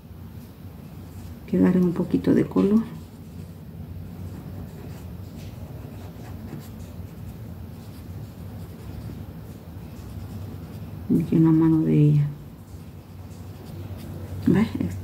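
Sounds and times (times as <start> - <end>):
steady low hum: 0.0 - 15.0
cotton swab scratching on paper: 2.7 - 11.8, 12.7 - 15.0.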